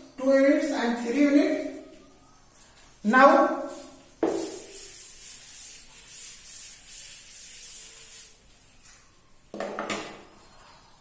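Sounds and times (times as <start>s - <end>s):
duster rubbing chalkboard: 2.5s - 9.1s.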